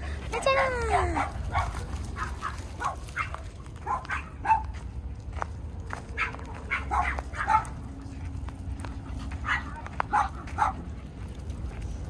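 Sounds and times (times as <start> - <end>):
dog barking and yipping: 0.3 - 4.8, 6.1 - 7.9, 9.3 - 10.9.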